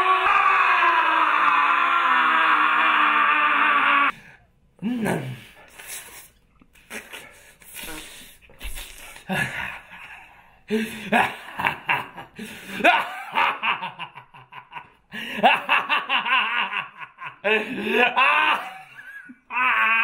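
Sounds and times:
man laughing: 10.8 - 20.0.

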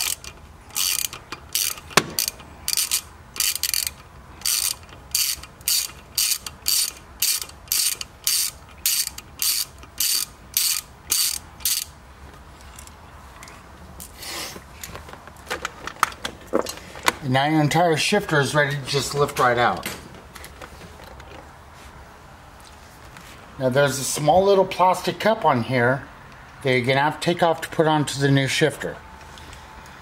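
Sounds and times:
socket ratchet clicking: 0.0 - 11.9.

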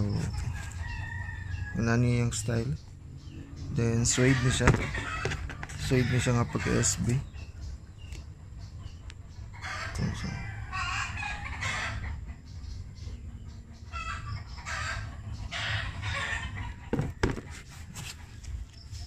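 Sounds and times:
bird calling: 0.0 - 19.0
sharp knocks: 4.6 - 5.8, 16.9 - 17.6.

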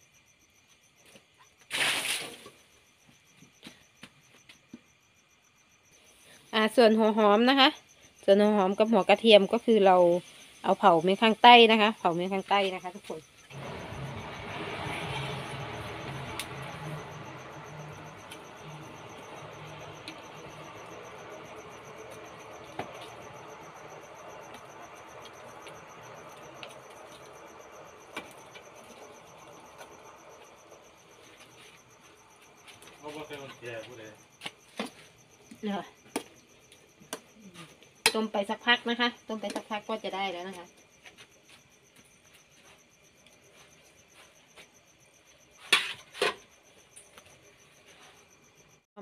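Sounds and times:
cricket trilling: 0.0 - 48.9
wood fire crackling: 13.0 - 38.0
water boiling: 13.5 - 32.1.

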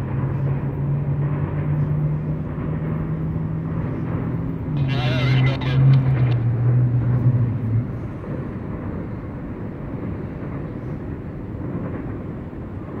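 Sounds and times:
low drone: 0.0 - 9.0
freight train rumbling: 0.0 - 13.0.

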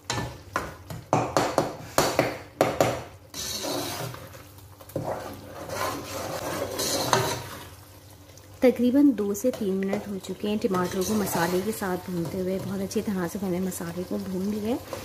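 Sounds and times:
spoon scraping a pan: 3.3 - 7.8, 9.4 - 13.1
food frying hiss: 3.3 - 15.0.

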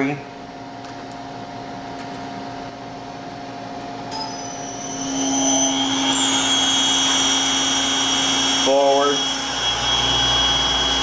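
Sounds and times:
spindle motor whining: 4.1 - 11.0.

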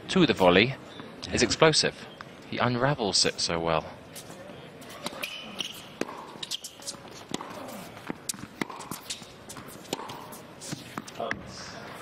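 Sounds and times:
crowd murmur: 3.8 - 12.0
tennis balls bouncing on hard court: 4.9 - 12.0.

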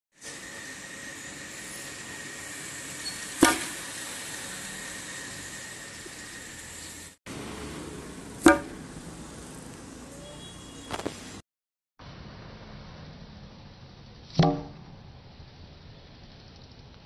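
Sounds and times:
outdoor background noise: 0.1 - 11.4, 12.0 - 17.0
toy rocket launcher pops: 3.4 - 3.8.

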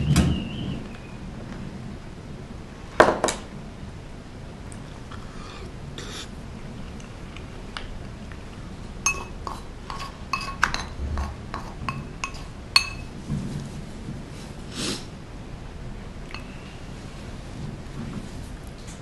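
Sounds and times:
spoon clinking on rice bowl: 9.0 - 10.9, 11.5 - 13.1.

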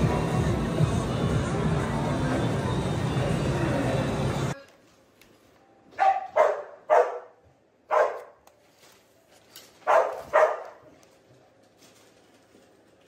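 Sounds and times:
dog barking: 6.0 - 8.4, 9.8 - 10.8.

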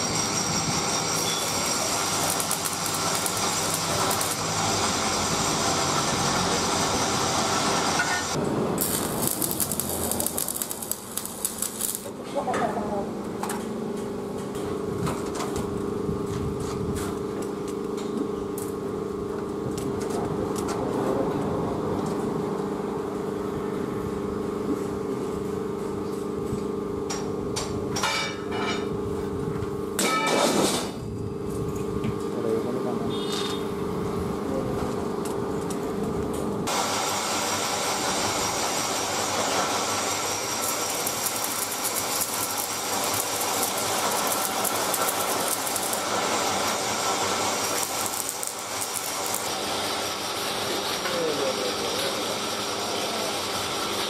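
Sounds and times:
steady hum: 0.0 - 5.3, 8.3 - 17.0, 39.9 - 50.8
angle grinder on steel: 0.0 - 12.2, 38.2 - 53.4
arc welding crackle: 0.0 - 12.5, 36.6 - 54.0.

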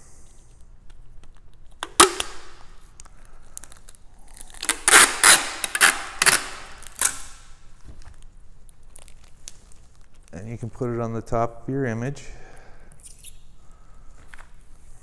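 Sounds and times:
packing tape ripping off roll: 1.3 - 10.4.

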